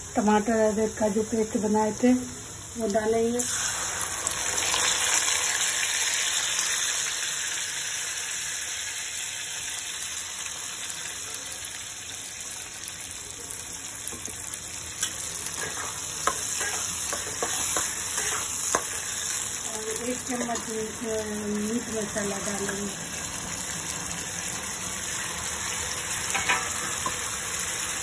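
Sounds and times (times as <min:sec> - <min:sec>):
paste sizzling in hot oil: 0:01.5 - 0:28.0
metal spatula scraping pan: 0:15.5 - 0:19.1.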